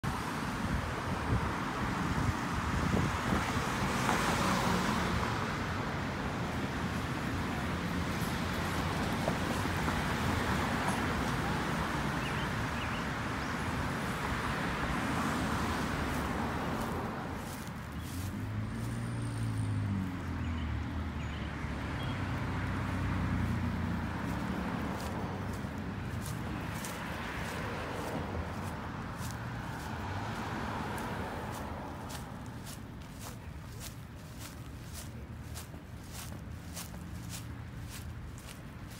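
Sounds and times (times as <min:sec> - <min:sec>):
cars driving past: 0:00.0 - 0:38.9
heavy vehicle engine hum: 0:14.6 - 0:38.9.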